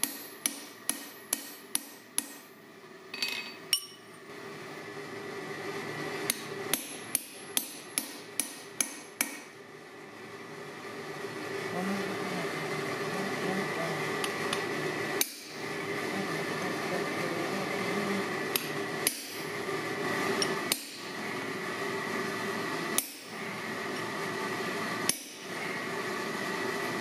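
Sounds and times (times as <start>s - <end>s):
hammer striking a punch on metal: 0.0s - 2.5s, 6.3s - 9.5s, 18.6s - 19.4s, 20.4s - 21.1s, 23.0s - 23.3s, 25.1s - 25.4s
ringing metal clanks: 3.2s - 4.1s.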